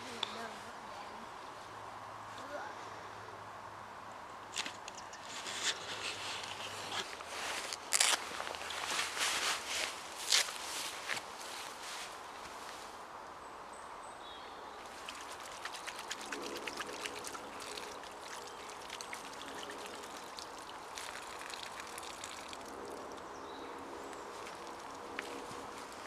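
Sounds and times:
water splashing over hands: 0:14.8 - 0:26.0
water running from a tap: 0:14.9 - 0:23.2.

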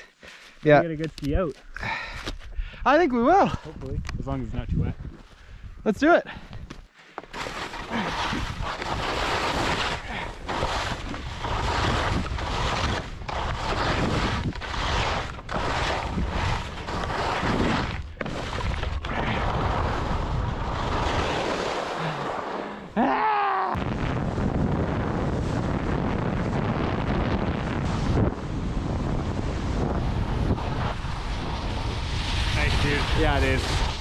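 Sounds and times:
wind buffeting microphone: 0:02.5 - 0:06.7, 0:07.9 - 0:21.2, 0:23.8 - 0:34.0
skis running over snow: 0:07.2 - 0:22.8, 0:24.2 - 0:34.0.

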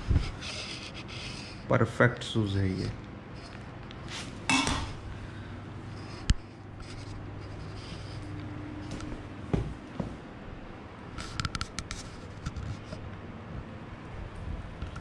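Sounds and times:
boot step on tiled floor: 0:08.9 - 0:10.2
boot tapping on tiled floor: 0:08.9 - 0:10.2.

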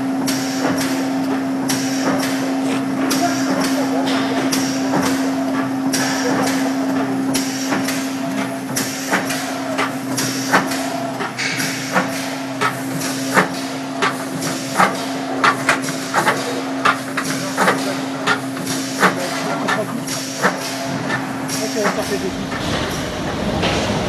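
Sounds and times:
mechanical clacks: 0:00.2 - 0:24.0
motor hum: 0:09.6 - 0:24.0.

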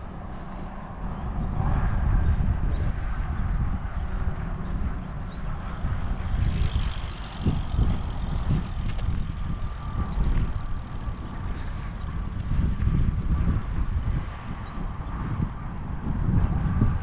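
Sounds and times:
wind buffeting microphone: 0:00.0 - 0:17.0
bicycle passing hiss: 0:06.1 - 0:12.0.

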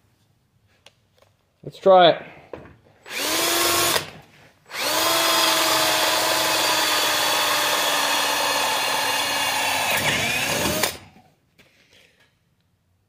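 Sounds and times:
cordless drill boring into wood: 0:03.0 - 0:11.2.

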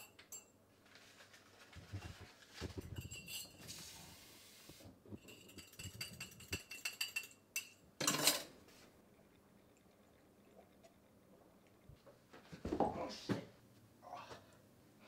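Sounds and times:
spoon clinking in ceramic mug: 0:05.2 - 0:08.5.

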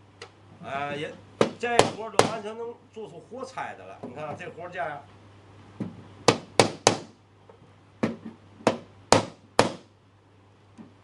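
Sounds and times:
hammer knocking on wood: 0:01.4 - 0:02.4, 0:05.8 - 0:07.1, 0:08.0 - 0:09.9.

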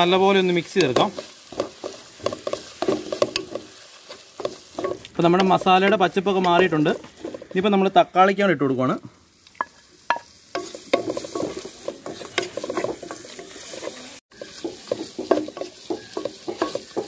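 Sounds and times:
food sizzling: 0:00.0 - 0:17.0
spatula scraping a pan: 0:00.6 - 0:06.0, 0:10.6 - 0:17.0.

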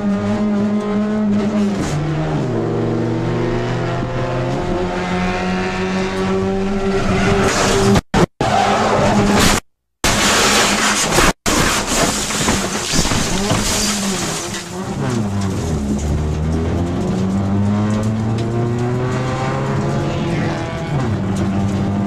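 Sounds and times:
race car engine accelerating: 0:00.0 - 0:08.0, 0:14.8 - 0:22.0.

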